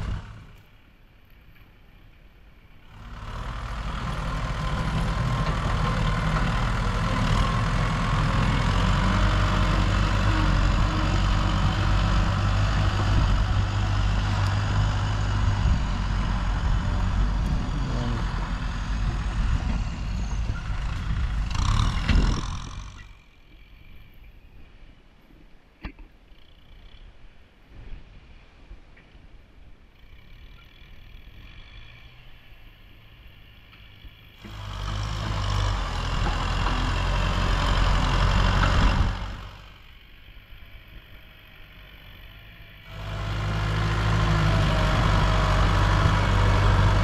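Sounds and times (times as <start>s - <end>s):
heavy diesel engine running: 0.0s - 0.7s, 2.8s - 23.2s, 33.4s - 47.0s.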